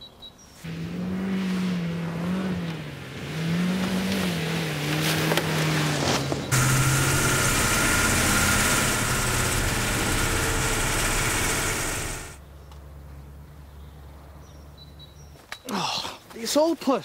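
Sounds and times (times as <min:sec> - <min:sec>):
road noise: 0:00.6 - 0:15.5
van engine driving: 0:00.7 - 0:12.4.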